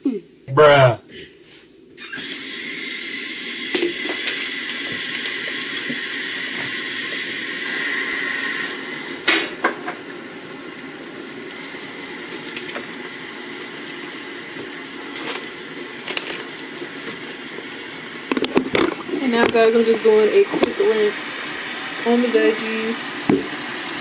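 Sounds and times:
whistle in water flow: 0:02.0 - 0:03.7, 0:04.6 - 0:09.2
kitchen tap running: 0:02.0 - 0:24.0
dishes knocking: 0:23.3 - 0:23.5.

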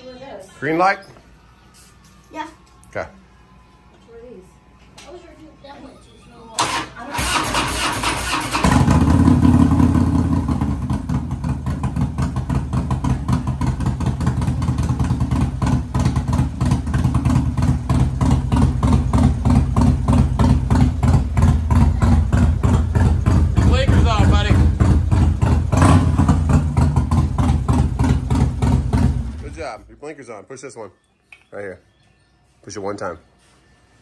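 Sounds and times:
electric starter cranking: 0:06.6 - 0:09.2
motorcycle engine idling: 0:08.5 - 0:29.6.

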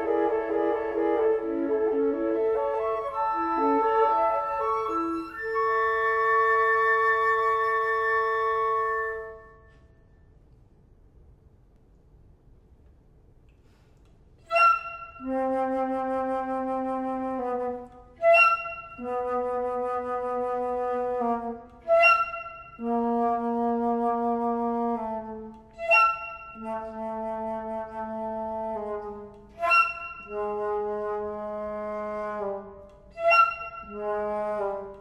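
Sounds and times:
flutes playing braying figure: 0:14.4 - 0:35.0.

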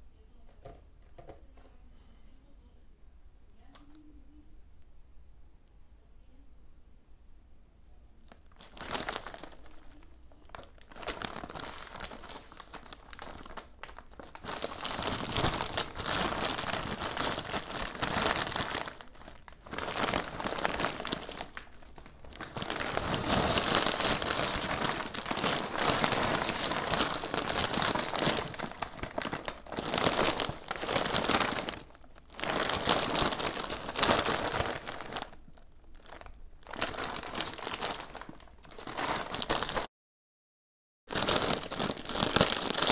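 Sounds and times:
foil snack bags crinkling: 0:08.3 - 0:39.9, 0:41.1 - 0:42.9.

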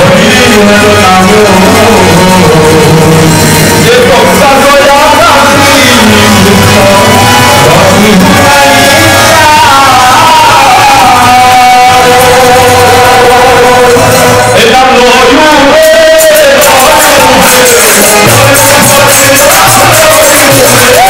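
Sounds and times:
loud devotional singing: 0:00.0 - 0:21.0.

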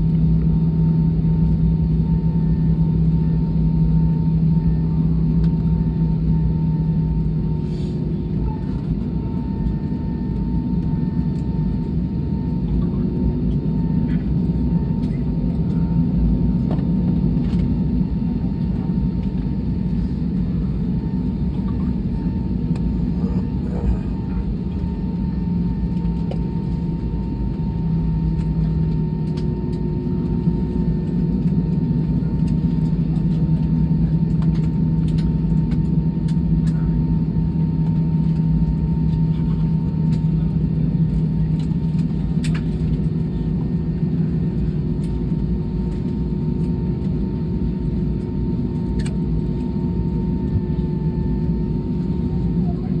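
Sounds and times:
aircraft engine rumble: 0:00.0 - 0:53.0
faint small clicks: 0:49.0 - 0:49.2.

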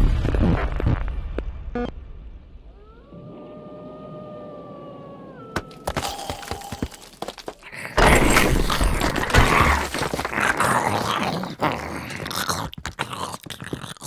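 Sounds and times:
zombie growl and snarl: 0:07.6 - 0:14.0.

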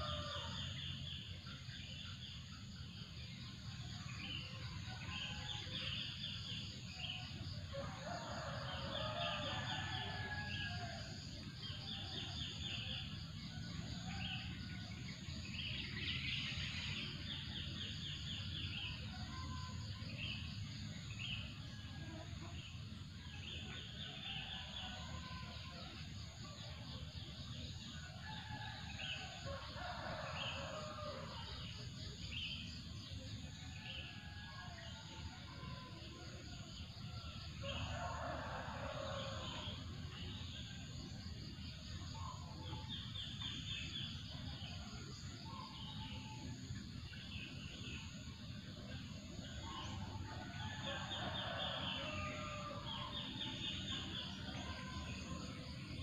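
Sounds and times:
rooster crowing: 0:07.7 - 0:11.0, 0:37.6 - 0:39.8, 0:49.9 - 0:54.7.

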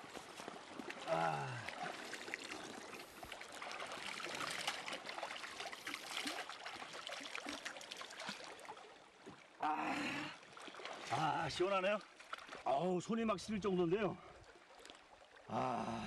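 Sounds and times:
hands splashing water: 0:00.0 - 0:08.8
stream running over stones: 0:00.0 - 0:16.0.

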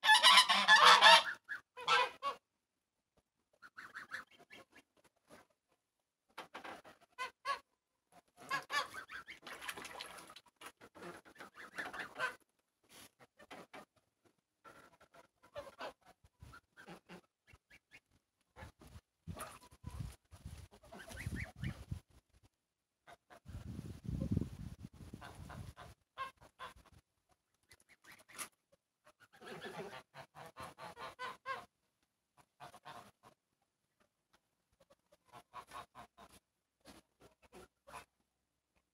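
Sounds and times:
geese honking: 0:00.0 - 0:02.4.

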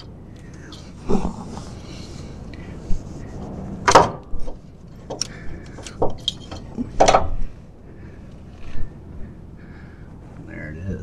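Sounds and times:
metal clanking: 0:03.8 - 0:07.5.

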